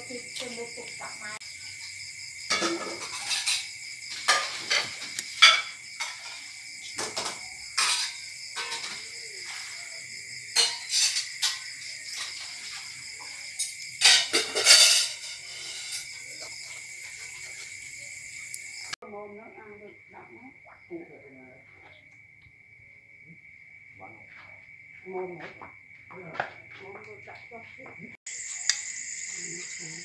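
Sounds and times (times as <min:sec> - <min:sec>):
insect trill: 0:00.0 - 0:30.0
metal ladle scraping a pot: 0:02.5 - 0:06.6, 0:13.6 - 0:16.6.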